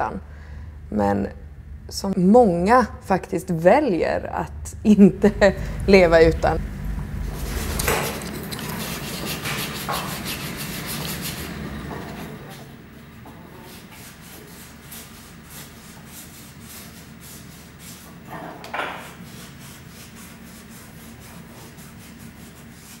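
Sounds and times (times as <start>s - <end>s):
low steady hum: 0.0s - 17.8s
hand tool rubbing a workpiece: 7.3s - 23.0s.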